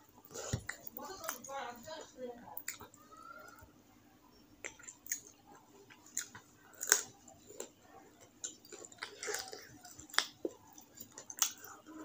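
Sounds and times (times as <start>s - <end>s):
chewing with wet smacks: 2.6s - 3.0s, 4.6s - 12.0s.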